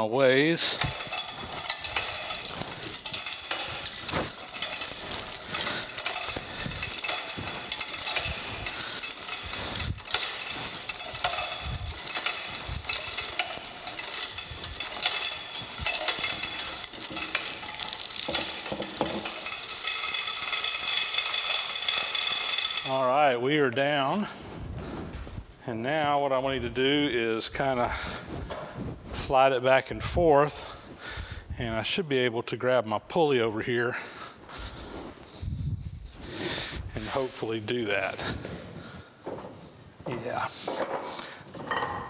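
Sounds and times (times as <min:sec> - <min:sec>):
hoist chain rattling and clinking: 0:00.0 - 0:25.5.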